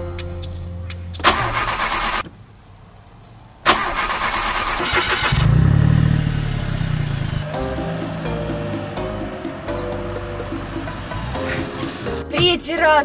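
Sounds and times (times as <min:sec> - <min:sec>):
starter motor cranking: 0:01.2 - 0:02.2, 0:03.7 - 0:12.2
car engine running: 0:04.1 - 0:12.6.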